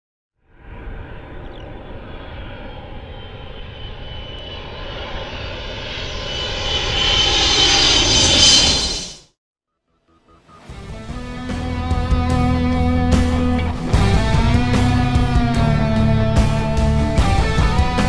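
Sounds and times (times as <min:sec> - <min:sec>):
high whine rising in pitch: 0:00.5 - 0:09.3
jet engine roar: 0:00.5 - 0:09.4.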